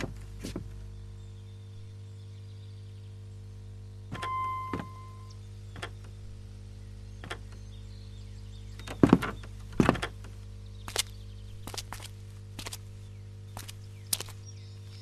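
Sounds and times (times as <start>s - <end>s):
footsteps on debris: 0.0s - 0.7s, 10.8s - 15.0s
low steady drone: 0.9s - 8.8s
heavy thuds on wooden board: 8.8s - 10.2s.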